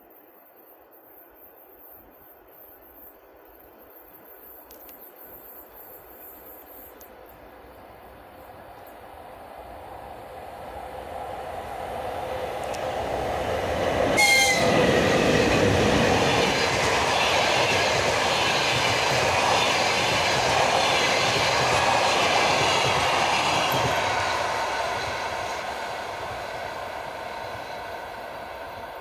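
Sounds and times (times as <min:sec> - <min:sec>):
train wheels on rails: 0:02.1 - 0:29.0
electric locomotive whine: 0:06.9 - 0:29.0.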